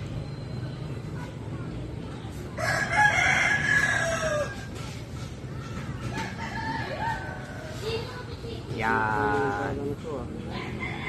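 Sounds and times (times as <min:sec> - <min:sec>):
rooster crowing: 0:02.6 - 0:04.7.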